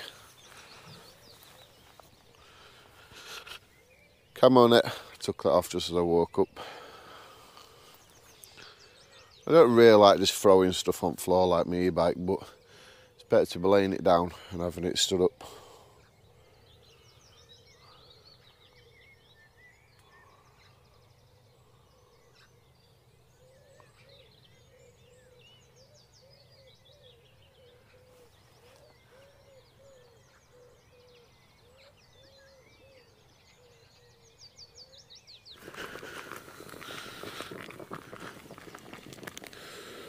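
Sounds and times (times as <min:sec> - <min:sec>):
birds chirping and trilling: 0:00.0 - 0:40.0
low repeated bird call: 0:00.0 - 0:40.0
rustling and handling noise: 0:35.6 - 0:40.0.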